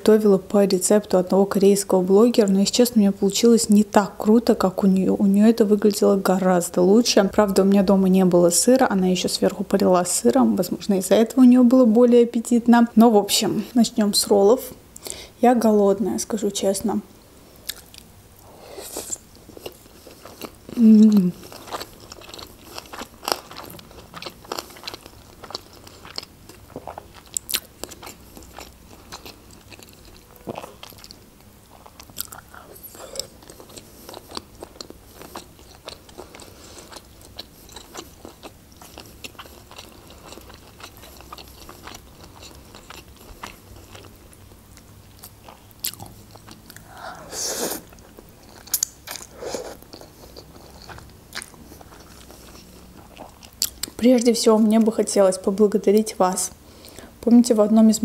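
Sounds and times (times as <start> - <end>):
person chewing food: 17.6 - 18.1, 18.9 - 54.0.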